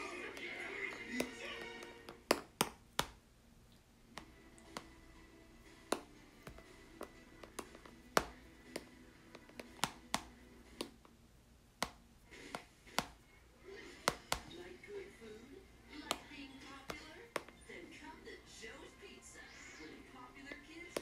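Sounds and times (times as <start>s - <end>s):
stylus tapping on glass screen: 5.8s - 11.0s.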